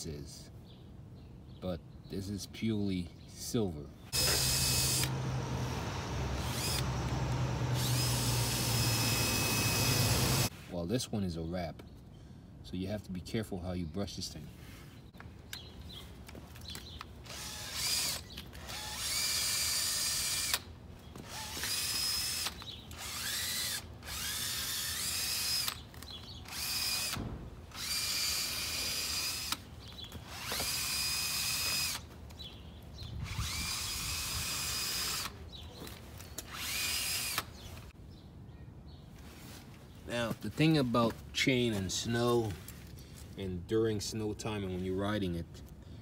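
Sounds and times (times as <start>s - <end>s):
power drill whirring: 4.1s - 10.5s, 17.2s - 29.6s, 30.2s - 32.1s, 33.2s - 35.4s, 36.4s - 37.6s.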